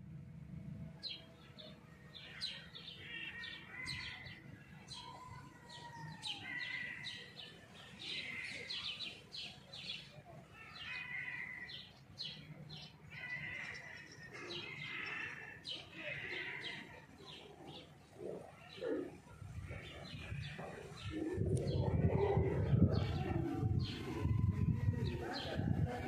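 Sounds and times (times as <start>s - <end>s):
small songbirds chirping: 1.0s - 19.0s.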